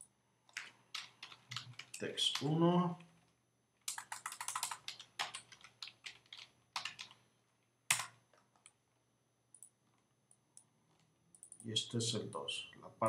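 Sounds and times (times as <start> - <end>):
computer keyboard typing: 0.0 - 2.6, 3.8 - 7.2, 7.9 - 8.8.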